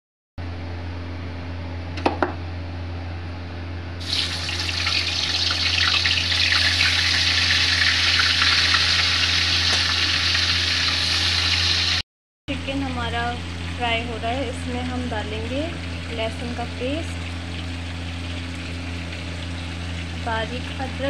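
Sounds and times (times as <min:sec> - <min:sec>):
chicken frying in hot oil: 0:04.0 - 0:12.0, 0:12.6 - 0:21.0
steady low hum: 0:12.5 - 0:21.0.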